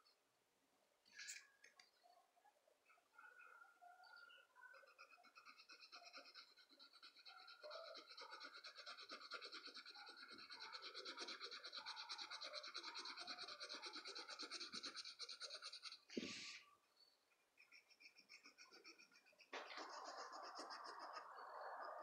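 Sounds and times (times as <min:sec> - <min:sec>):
pencil scratching on paper: 0:18.4 - 0:21.3.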